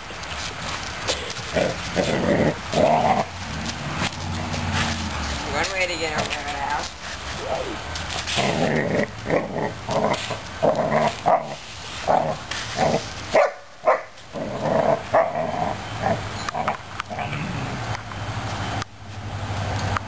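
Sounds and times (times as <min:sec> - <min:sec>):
puppy barking: 0:13.3 - 0:14.1.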